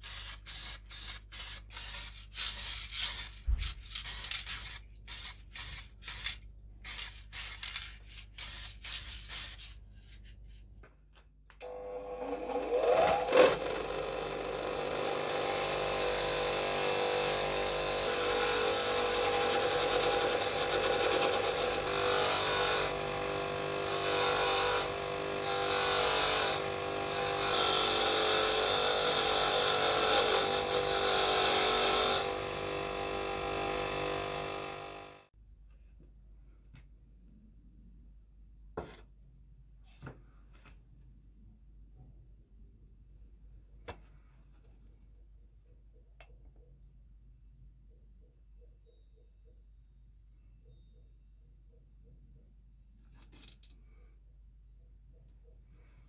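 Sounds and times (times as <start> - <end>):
aerosol spray can spraying: 0.0 - 7.7, 8.4 - 9.7
bench grinder whining: 11.6 - 35.3.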